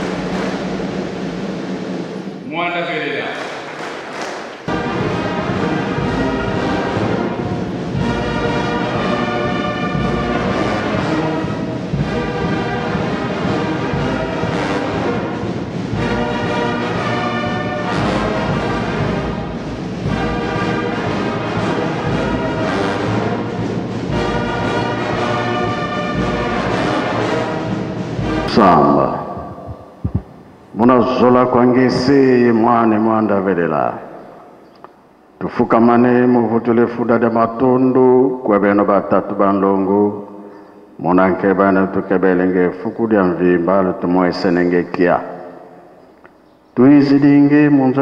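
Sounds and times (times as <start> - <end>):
brass band playing slow music: 0.0 - 2.5, 3.4 - 35.2.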